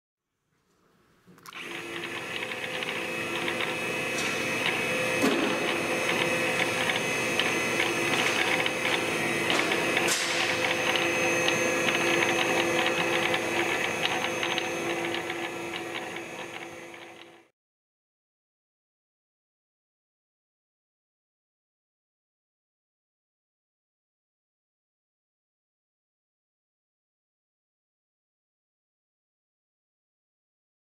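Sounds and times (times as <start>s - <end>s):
grinder motor humming and whining: 1.5s - 17.5s.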